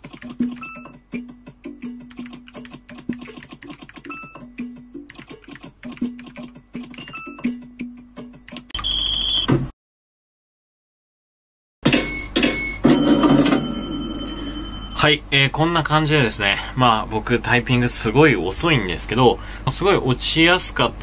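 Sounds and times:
mechanical keyboard typing: 0.0 - 0.8, 2.1 - 4.4, 5.0 - 7.3
game background music: 0.0 - 8.7
short beeps: 8.7 - 9.5.

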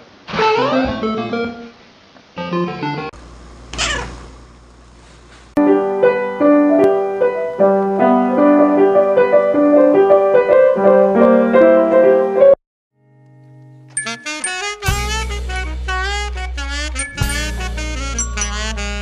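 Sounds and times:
piano tune: 5.6 - 19.0.

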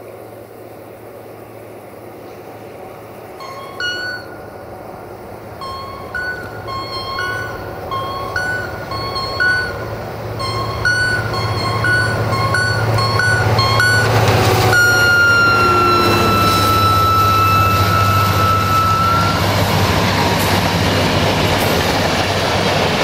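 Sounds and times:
locomotive engine rumble: 0.1 - 23.0
two-tone locomotive horn: 5.6 - 20.5.

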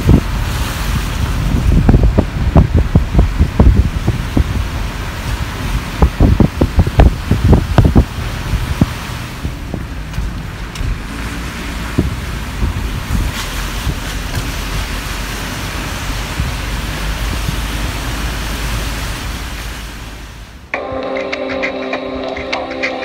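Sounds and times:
wind on microphone: 0.0 - 15.3, 16.0 - 18.3.

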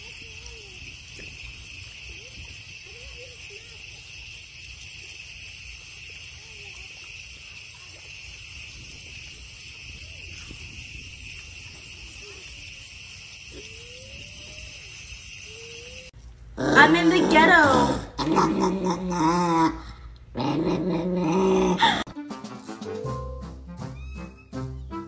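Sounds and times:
insects chorus: 0.0 - 16.2.

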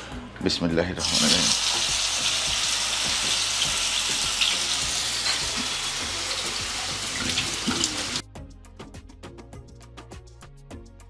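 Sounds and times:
light background music: 0.0 - 11.0
meat sizzling in oil: 1.0 - 8.2.

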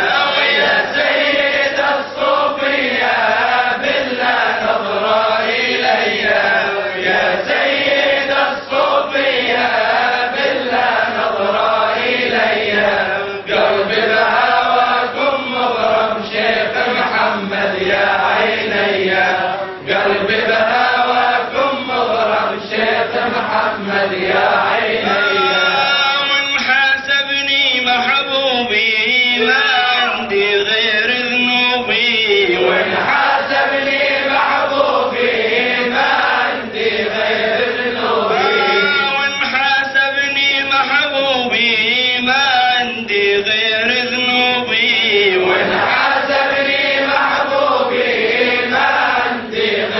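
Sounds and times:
man chanting: 0.0 - 0.9, 25.0 - 33.2, 38.3 - 45.8
man chanting unaccompanied: 0.0 - 35.2, 37.0 - 48.0.

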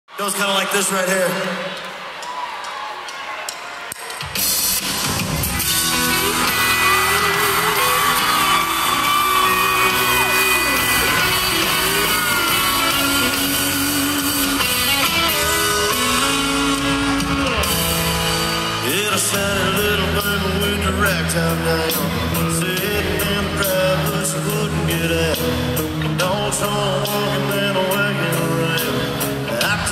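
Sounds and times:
live country band: 0.1 - 29.9
guitars: 4.1 - 29.9
man singing: 18.7 - 29.9.

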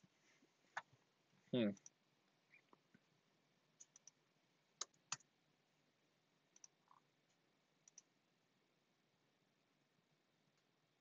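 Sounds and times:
computer mouse clicks: 3.8 - 4.2, 4.8 - 5.3, 6.5 - 8.1.

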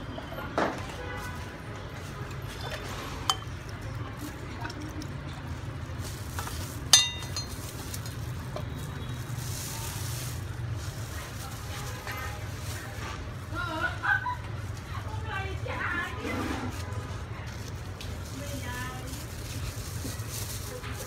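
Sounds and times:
metal ladle scraping and clinking: 2.2 - 3.7, 6.2 - 8.3
soup pouring: 2.3 - 8.4.

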